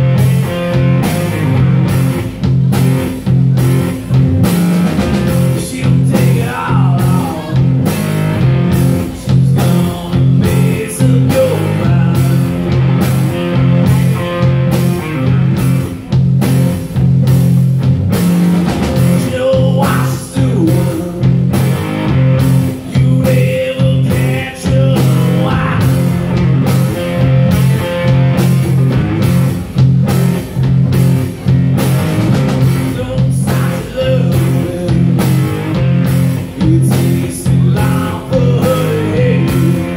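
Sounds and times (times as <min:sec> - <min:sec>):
bass guitar: 0:00.0 - 0:39.9
drum kit beat: 0:00.0 - 0:39.9
electric guitars: 0:00.0 - 0:39.9
man singing: 0:05.3 - 0:08.0, 0:09.0 - 0:12.8, 0:19.1 - 0:21.5, 0:22.7 - 0:26.2, 0:32.7 - 0:39.9.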